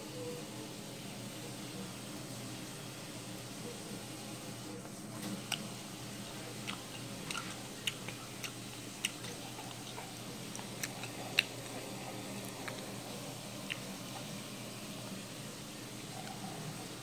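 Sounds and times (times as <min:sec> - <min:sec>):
low steady room hiss: 0:00.0 - 0:17.0.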